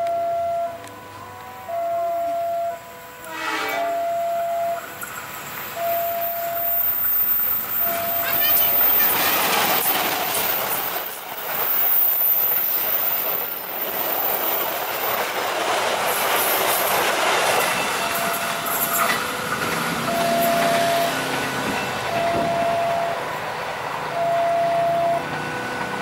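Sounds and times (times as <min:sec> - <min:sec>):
level crossing warning tone: 0:00.0 - 0:10.2, 0:17.0 - 0:26.0
train wheels on rail rushing past: 0:03.3 - 0:26.0.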